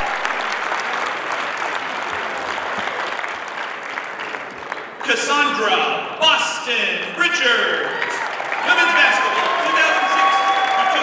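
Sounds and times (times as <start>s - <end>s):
crowd applauding: 0.0s - 5.6s, 7.6s - 11.0s.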